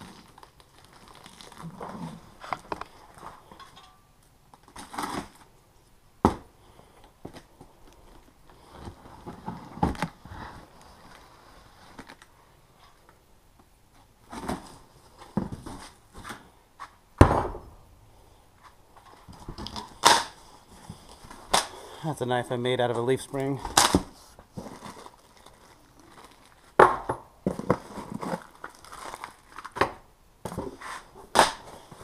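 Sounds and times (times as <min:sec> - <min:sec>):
heavy thump: 0:17.2 - 0:17.8.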